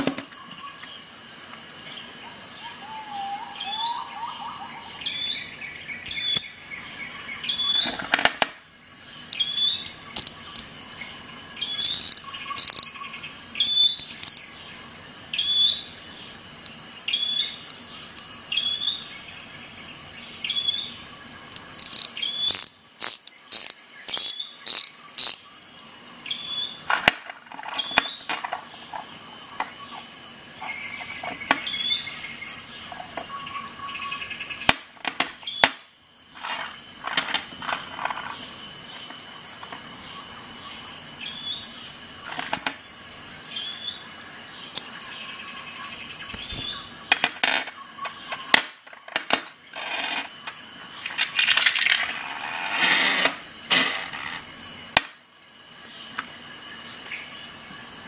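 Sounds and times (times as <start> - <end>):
sharp clicks and knocks: 0.0 - 0.3, 9.3 - 10.7, 11.8 - 12.9, 13.7 - 14.4, 21.5 - 25.4
ratchet clicking: 10.2 - 10.6, 11.8 - 12.9, 13.7 - 14.4, 21.6 - 25.4.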